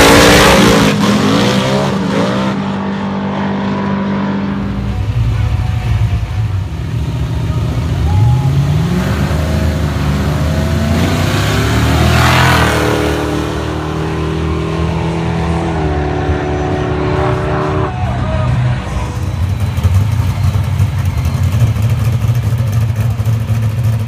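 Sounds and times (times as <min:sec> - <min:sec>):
engines accelerating with tyre noise: 0:00.0 - 0:24.0
engines revving: 0:00.0 - 0:24.0.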